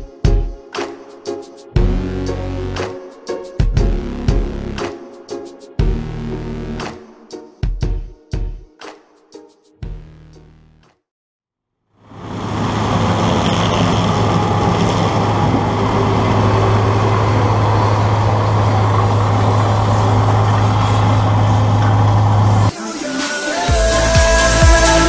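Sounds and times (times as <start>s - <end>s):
combine harvester engine drone: 12.0s - 22.7s
broad rushing noise: 12.0s - 23.3s.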